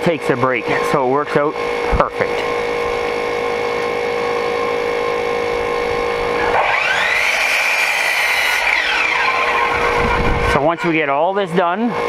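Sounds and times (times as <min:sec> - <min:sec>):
miter saw whining: 0:00.0 - 0:12.0
saw blade cutting wood: 0:06.2 - 0:12.0.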